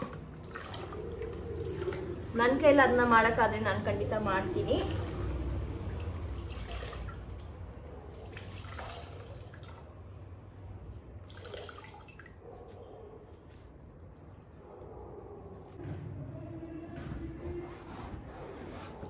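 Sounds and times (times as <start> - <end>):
water dripping and splashing: 0.0 - 3.5, 4.6 - 12.4, 13.8 - 14.6.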